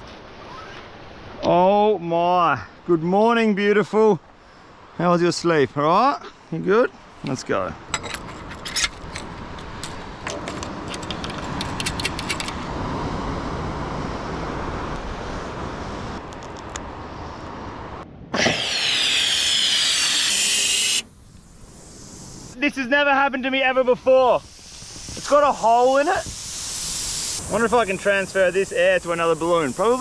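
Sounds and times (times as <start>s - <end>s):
fishing gear clicking and rattling: 8.0s - 12.6s
gas hissing into balloon: 18.4s - 22.6s, 24.0s - 30.0s.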